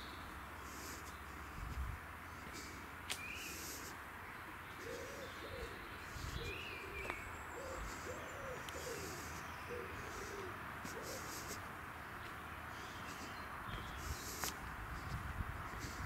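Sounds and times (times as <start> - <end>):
pigeon cooing: 4.8 - 11.6.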